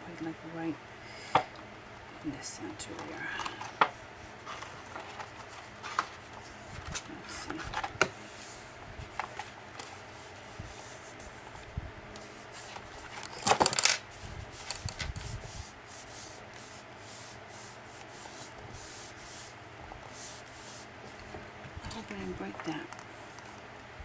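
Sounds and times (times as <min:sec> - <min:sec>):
paper rustling: 0:04.2 - 0:19.5.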